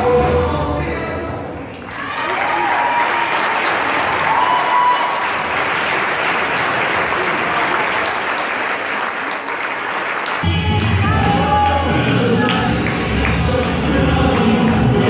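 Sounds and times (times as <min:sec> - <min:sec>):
music: 0:00.0 - 0:01.9, 0:10.4 - 0:15.0
audience applauding: 0:01.7 - 0:10.9.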